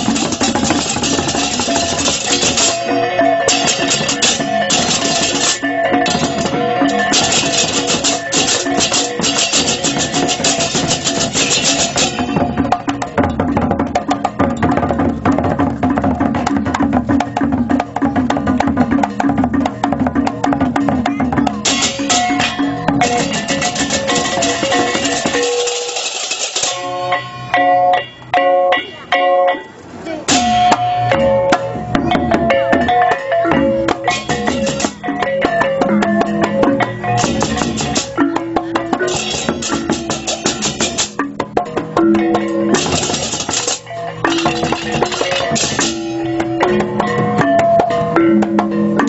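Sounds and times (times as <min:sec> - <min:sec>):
hand cymbals clashing: 0:00.0 - 0:13.0, 0:21.6 - 0:29.7, 0:30.3 - 0:41.3, 0:42.1 - 0:49.0
drumming: 0:00.0 - 0:29.6, 0:30.2 - 0:49.0.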